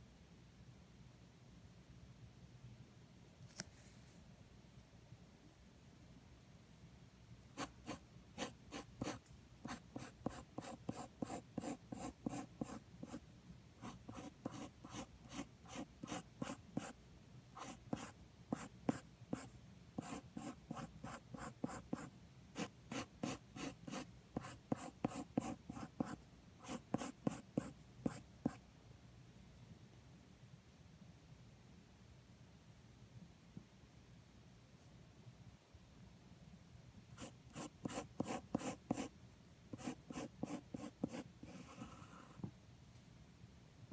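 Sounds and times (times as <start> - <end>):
pencil scratching on paper: 7.6 - 13.2, 13.8 - 17.0, 17.6 - 28.6, 37.2 - 39.1, 39.7 - 42.4.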